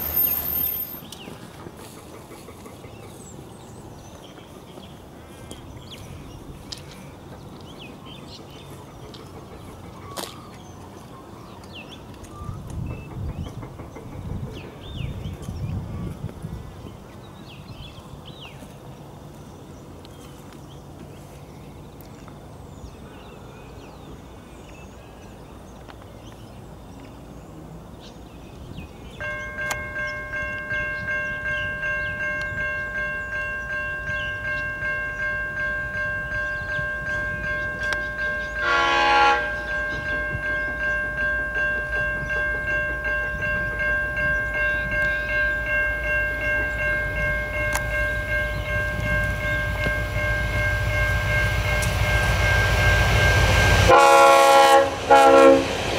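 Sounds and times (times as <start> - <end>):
train rumble: 0.0 - 55.9
pulsing ringing bell: 29.2 - 54.0
locomotive horn blast: 38.4 - 39.8, 50.0 - 55.9.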